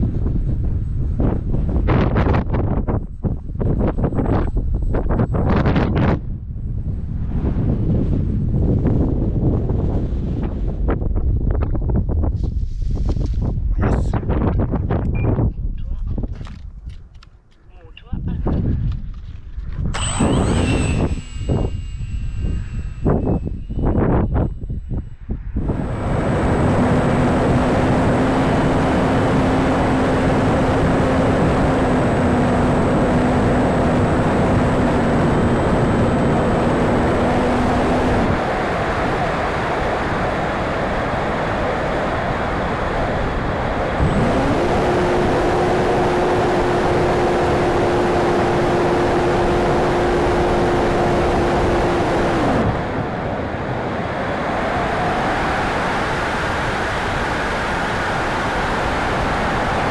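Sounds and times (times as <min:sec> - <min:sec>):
wind rushing over microphone: 0:00.0 - 0:59.9
electric motor and propeller whine: 0:19.8 - 0:24.8, 0:25.6 - 0:59.9.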